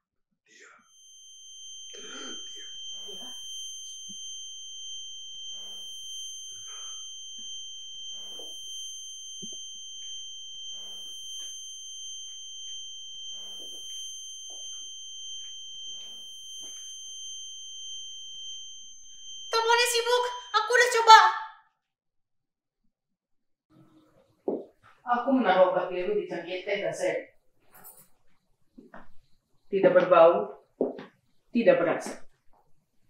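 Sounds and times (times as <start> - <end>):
high-pitched ringing tone: 0.7 - 21.7, 25.2 - 30.1.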